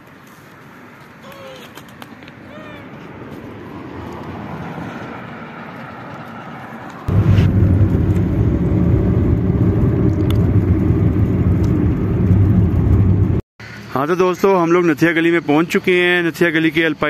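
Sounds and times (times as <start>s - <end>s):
open-air road noise: 0.0s - 17.0s
car engine and road noise inside cabin: 7.1s - 13.4s.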